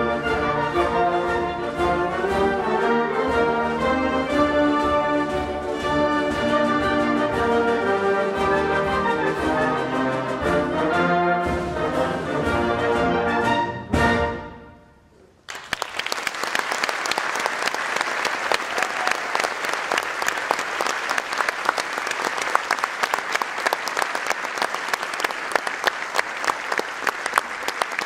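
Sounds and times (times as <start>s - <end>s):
audience applause: 15.5s - 28.0s.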